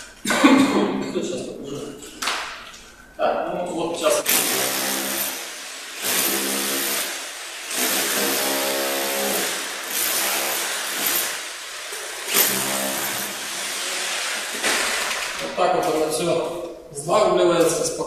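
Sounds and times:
angle grinder grinding concrete: 0:04.2 - 0:15.4.

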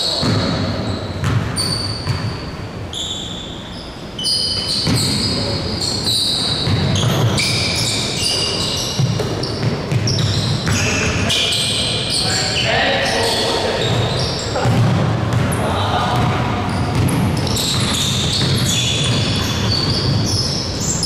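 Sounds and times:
sneaker squeaks on floor: 0:00.0 - 0:21.0
basketball bouncing: 0:00.2 - 0:02.5, 0:04.6 - 0:07.8, 0:08.9 - 0:11.4, 0:13.8 - 0:20.5.

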